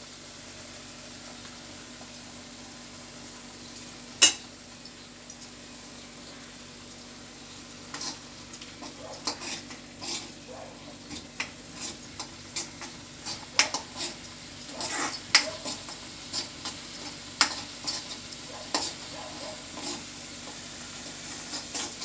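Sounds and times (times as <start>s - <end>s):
faint sizzle: 0.0s - 22.0s
spoon scraping pan: 7.8s - 22.0s.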